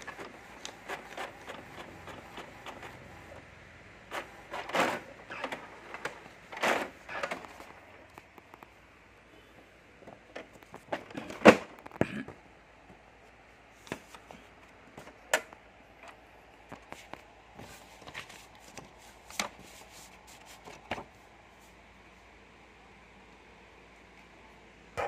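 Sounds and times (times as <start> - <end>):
clicks and knocks on plastic printer: 4.1 - 7.8, 10.0 - 12.1
paper handling: 16.7 - 21.1.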